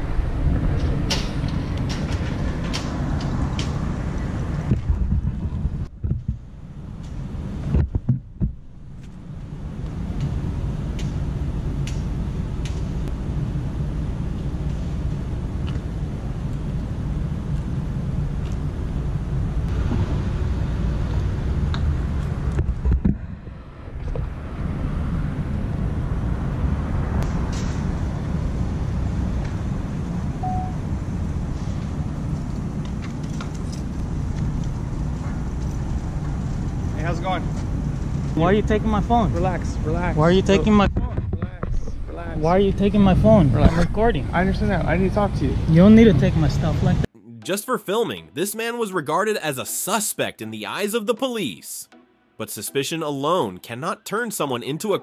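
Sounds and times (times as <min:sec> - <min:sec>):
wind rumbling on microphone: 0:00.0 - 0:13.2, 0:15.2 - 0:38.4, 0:40.6 - 0:44.4
microphone bumps: 0:04.7 - 0:06.5, 0:07.7 - 0:09.1, 0:40.8 - 0:42.1
short high beep: 0:30.4 - 0:30.8.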